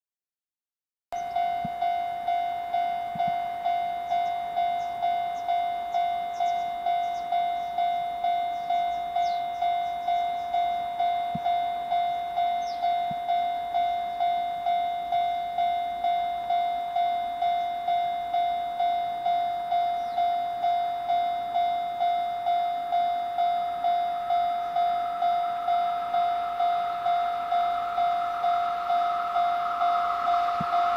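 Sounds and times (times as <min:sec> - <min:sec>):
level crossing bell ringing: 0:01.2 - 0:30.9
train approaching: 0:01.2 - 0:30.9
faint bird chirps: 0:04.0 - 0:10.7, 0:12.5 - 0:13.0, 0:19.8 - 0:20.4.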